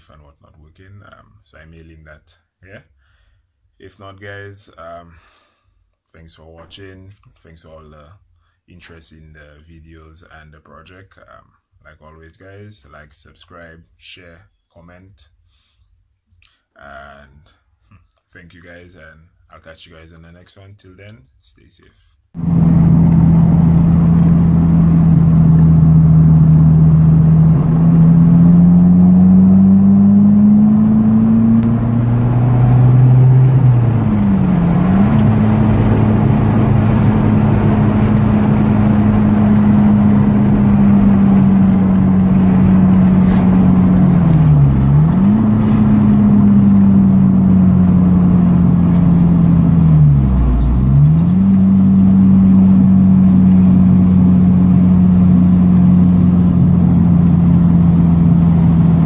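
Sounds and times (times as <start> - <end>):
car engine pulling under load: 22.4 - 59.0.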